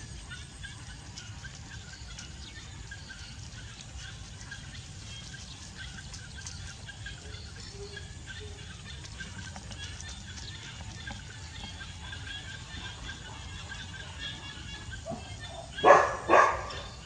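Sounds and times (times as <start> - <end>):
bird chirps: 0.3 - 17.0.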